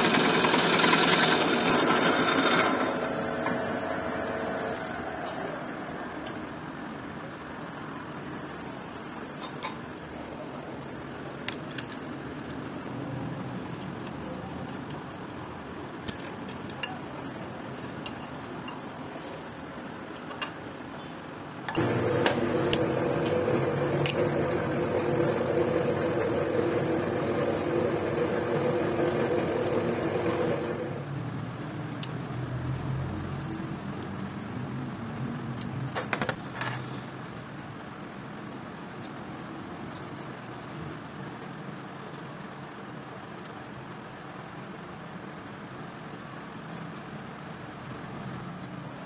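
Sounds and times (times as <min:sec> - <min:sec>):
workshop machine humming: 0:00.0 - 0:11.4, 0:21.5 - 0:32.1
low steady background noise: 0:03.2 - 0:21.8, 0:30.6 - 0:49.0.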